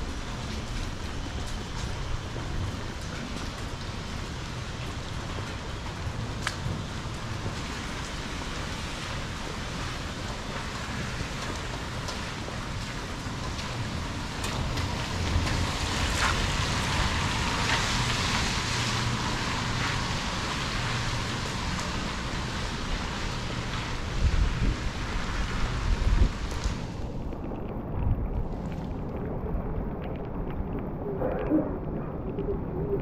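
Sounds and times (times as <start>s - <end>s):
rain falling on wet street: 0.0s - 33.0s
low rumble: 24.0s - 33.0s.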